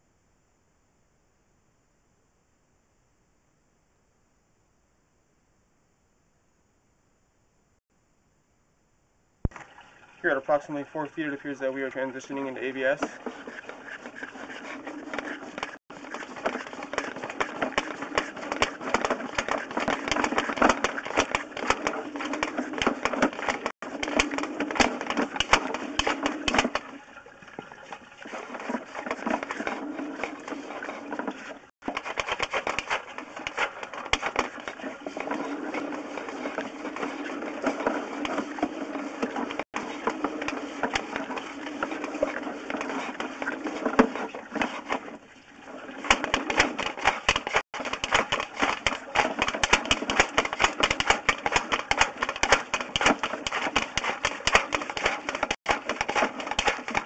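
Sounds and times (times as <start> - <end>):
cable clicking and rattling in pipe: 12.8 - 26.9, 46.0 - 57.0.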